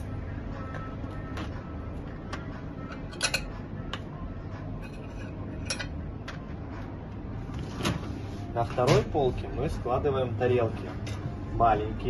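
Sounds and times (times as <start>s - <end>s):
steady low hum: 0.0s - 12.0s
cutlery and dishes clinking: 2.9s - 3.5s, 4.8s - 6.0s.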